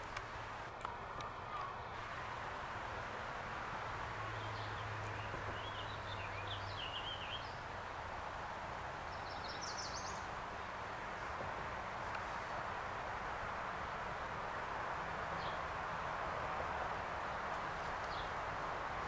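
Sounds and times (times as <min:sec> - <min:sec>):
steady background hiss: 0:00.0 - 0:19.0
songbirds singing: 0:03.8 - 0:11.0, 0:15.3 - 0:15.8, 0:17.3 - 0:19.0.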